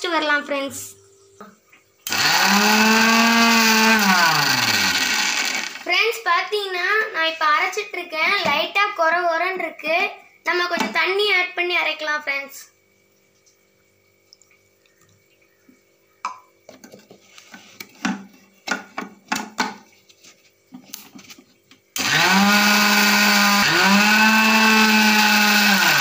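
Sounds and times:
mixer grinder motor whining: 0:02.0 - 0:05.9, 0:22.0 - 0:26.0.

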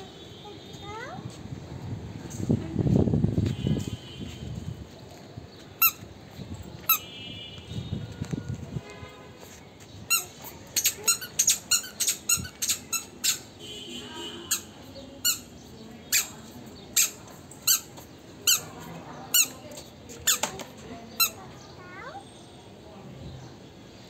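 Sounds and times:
squeaky shoes squeaking: 0:05.7 - 0:06.1, 0:09.8 - 0:13.6, 0:14.5 - 0:21.4.

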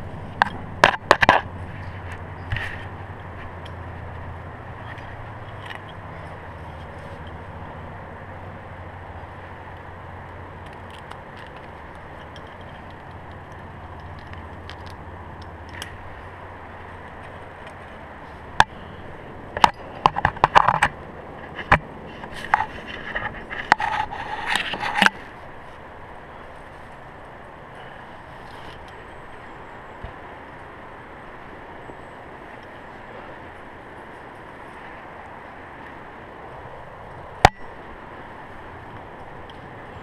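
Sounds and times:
steady low background noise: 0:00.0 - 0:40.0
climbing gear scraping on rock: 0:19.7 - 0:25.8, 0:27.8 - 0:29.1.

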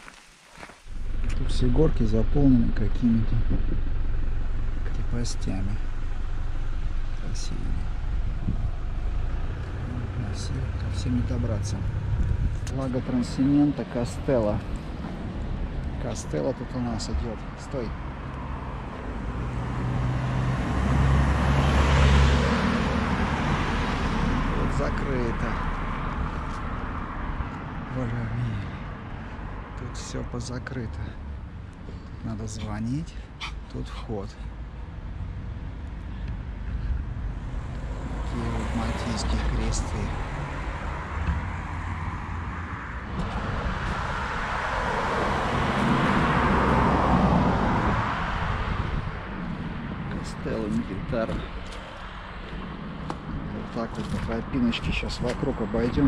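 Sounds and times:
car driving past: 0:18.0 - 0:29.9, 0:37.3 - 0:54.1.

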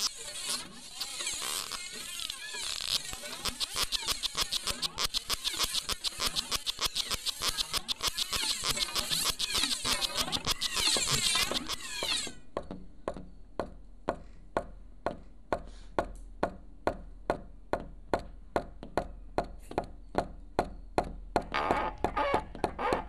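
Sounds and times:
squeaky chattering: 0:00.0 - 0:12.4.

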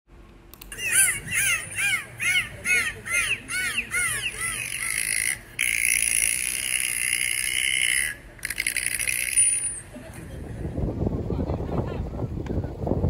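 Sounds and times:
bird calling: 0:00.6 - 0:09.5.

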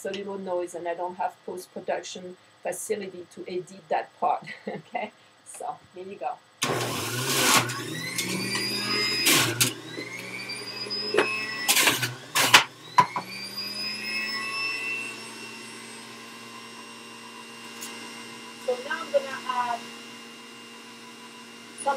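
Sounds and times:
juicer motor whine: 0:06.4 - 0:21.9
juicer grinding fruit: 0:06.6 - 0:21.9.

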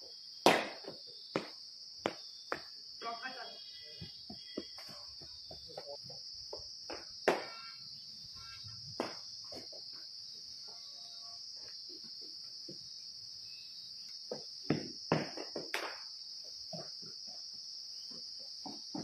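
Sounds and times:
insects chirring: 0:00.0 - 0:19.0
sharp knocks: 0:06.9 - 0:07.7.

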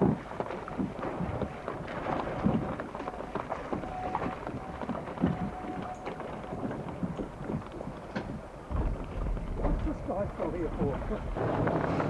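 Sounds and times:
water splashing along a hull: 0:00.0 - 0:12.0
wind buffeting microphone: 0:00.0 - 0:12.0.

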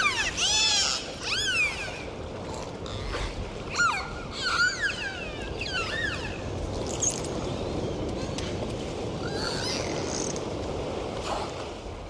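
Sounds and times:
dolphins whistling underwater: 0:00.0 - 0:02.1, 0:03.7 - 0:06.5.

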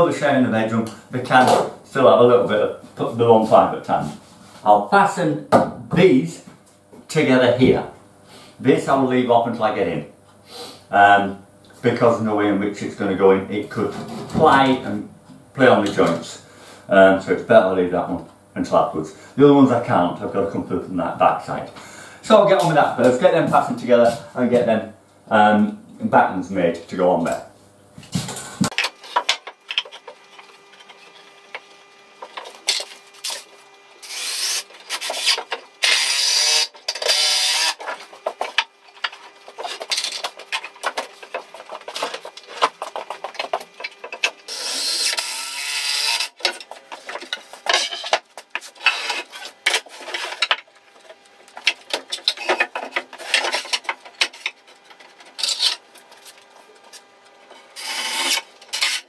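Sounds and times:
rasping scraping: 0:46.4 - 0:59.0.

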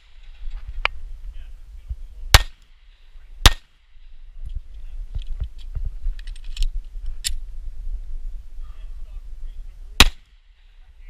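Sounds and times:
pistol gunshot: 0:02.4 - 0:02.6, 0:03.5 - 0:03.7, 0:10.0 - 0:10.3.

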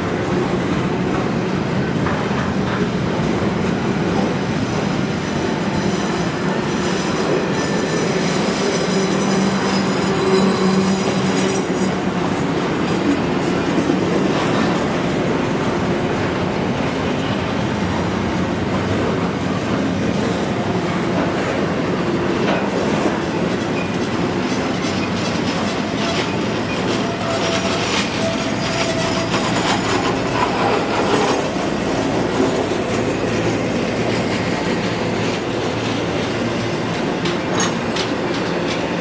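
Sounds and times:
train wheels clattering on rails: 0:00.0 - 0:39.0
high wheel squeal: 0:05.5 - 0:12.0.

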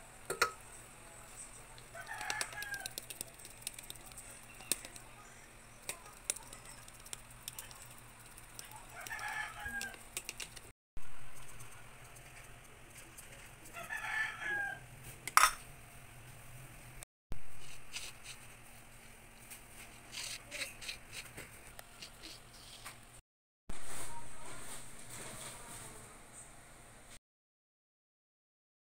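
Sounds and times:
rooster crowing: 0:01.9 - 0:03.1, 0:08.7 - 0:10.0, 0:13.7 - 0:14.9.

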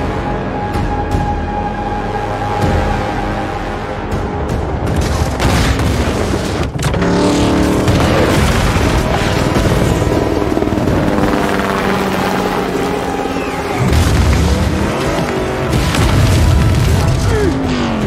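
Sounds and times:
dramatic score music: 0:00.0 - 0:18.0
explosions: 0:04.8 - 0:10.3, 0:13.8 - 0:17.4
racing car engine: 0:06.8 - 0:18.0.

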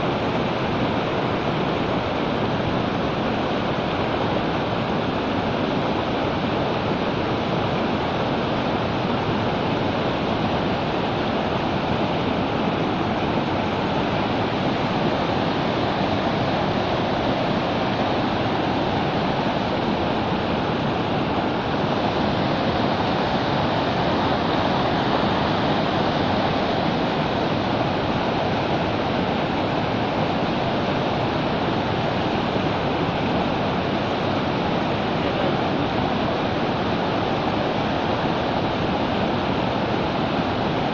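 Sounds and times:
floodwater rushing over causeway: 0:00.0 - 0:40.9.

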